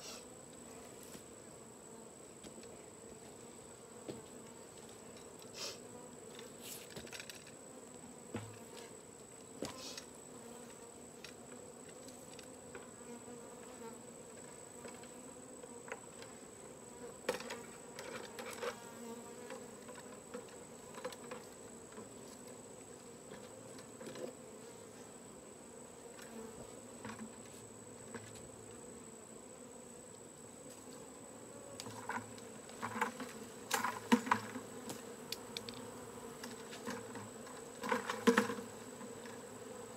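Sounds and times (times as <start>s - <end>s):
honeybee swarm buzzing: 30.7s - 39.9s.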